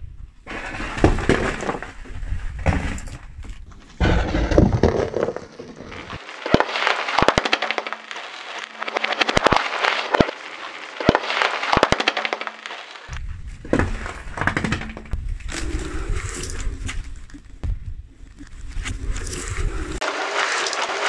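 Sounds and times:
tyre crushing bath bombs: 0.4s - 21.0s
low rumble: 13.1s - 20.0s.

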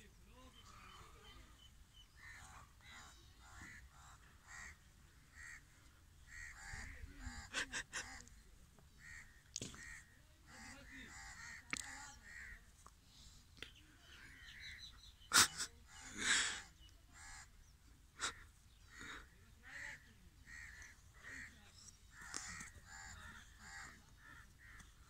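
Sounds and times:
crows cawing: 2.2s - 7.5s, 9.0s - 12.6s, 18.2s - 25.0s.

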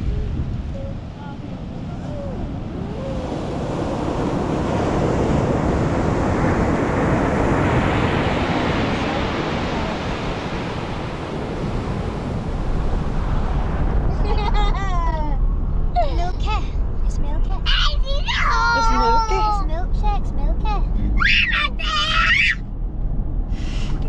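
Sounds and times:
ocean surf breaking: 0.0s - 15.9s.

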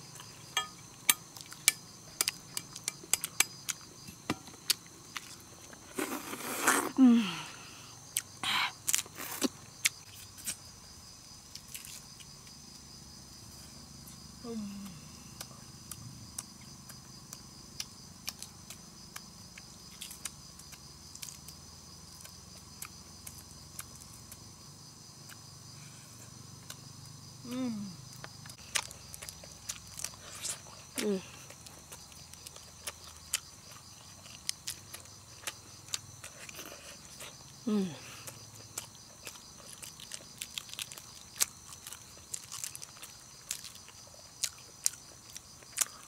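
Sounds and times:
insects chirring: 0.0s - 46.0s
person humming: 6.8s - 7.8s, 14.4s - 15.4s, 27.4s - 28.0s, 31.0s - 31.4s, 37.6s - 38.3s.

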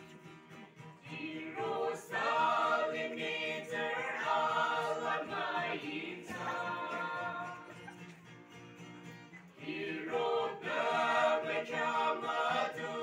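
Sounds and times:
group singing a hymn in harmony: 1.0s - 7.9s, 9.6s - 13.0s.

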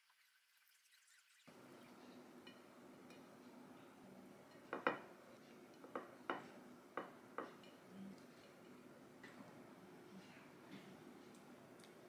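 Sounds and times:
ceramic plate clinking on stone: 4.6s - 5.1s.

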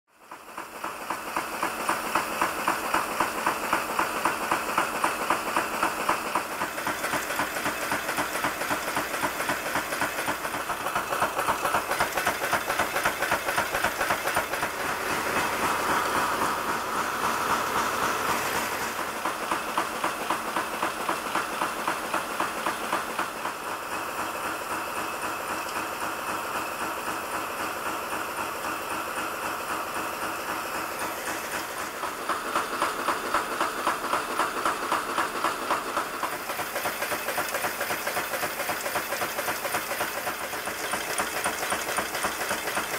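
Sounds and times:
machine hissing: 3.7s - 21.8s, 29.7s - 42.9s
nail-making machine strokes: 30.5s - 42.9s.

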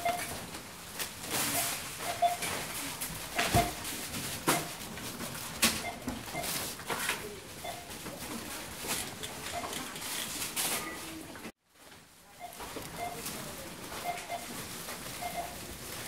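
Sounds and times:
barcode scanner beeping: 0.0s - 0.3s, 1.5s - 2.5s, 7.6s - 7.9s, 12.4s - 13.3s, 14.0s - 14.5s, 15.2s - 15.6s.

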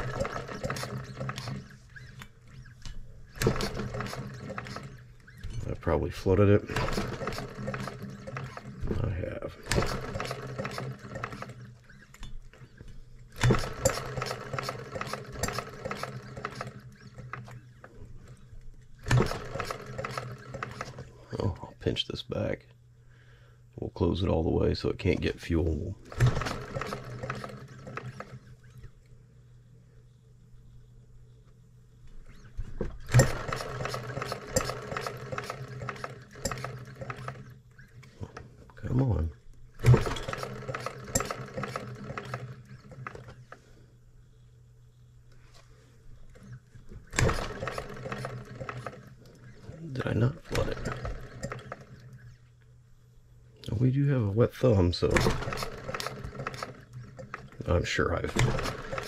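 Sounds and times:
engine flywheel clicking: 0.0s - 9.0s, 9.6s - 17.7s, 26.1s - 29.0s, 33.0s - 38.4s, 39.8s - 43.6s, 47.0s - 52.3s, 55.0s - 59.0s.

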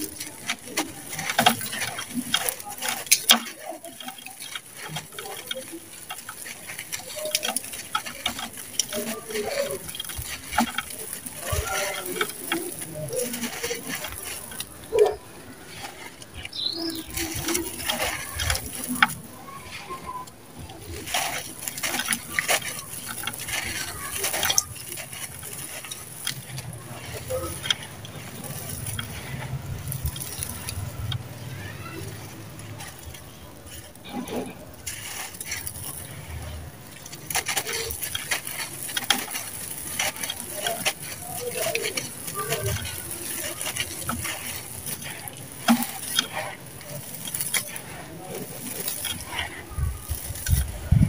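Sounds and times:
dry cement crumbling: 0.0s - 51.0s
bird chirp: 16.4s - 17.8s.

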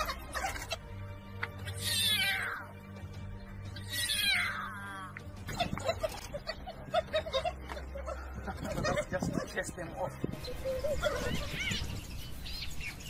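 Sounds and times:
lion cub mewing: 0.0s - 2.7s, 3.7s - 9.6s, 10.6s - 11.9s
low music drone: 0.0s - 13.0s.

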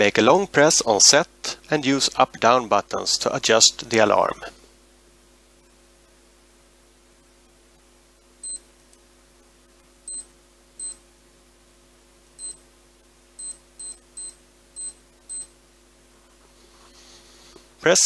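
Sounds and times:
watch beeping: 10.1s - 11.0s, 12.4s - 12.6s, 13.4s - 15.5s.

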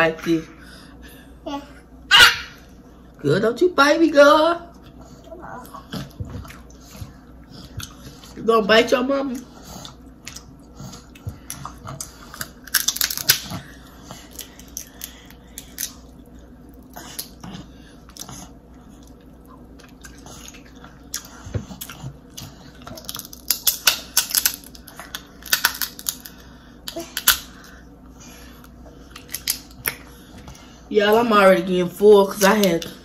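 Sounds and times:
crab shells cracking: 12.4s - 13.6s, 22.9s - 27.6s, 29.1s - 30.0s.

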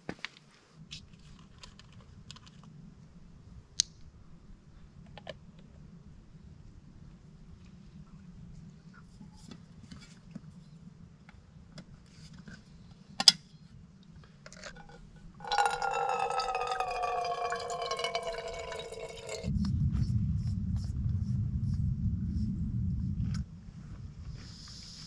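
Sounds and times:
water pouring into pot: 14.8s - 19.5s.

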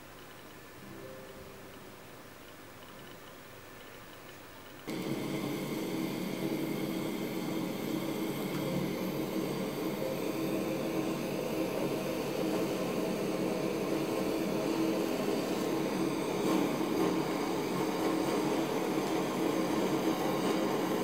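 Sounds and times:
blowtorch flame burning: 4.9s - 21.0s.

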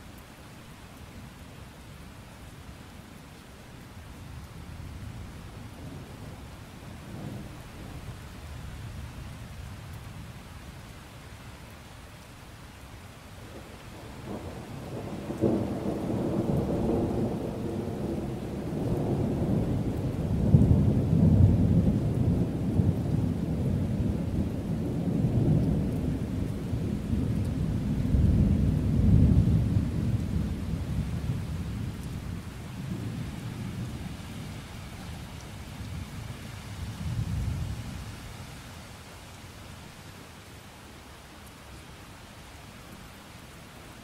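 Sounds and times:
steady rain: 0.0s - 44.0s
thunder crack and rumble: 14.3s - 34.0s.

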